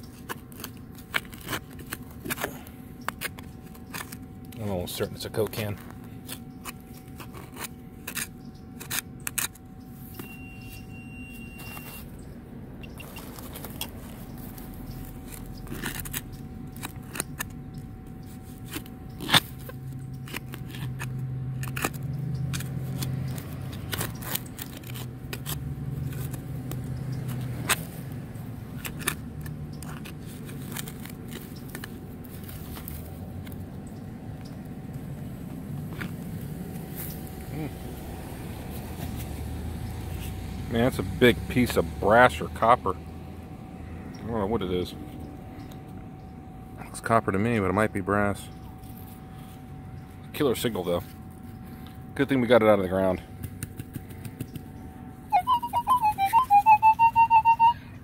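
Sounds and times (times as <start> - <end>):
sharp clicks and crunches: 0.0 - 10.3, 12.8 - 37.7, 51.8 - 54.8.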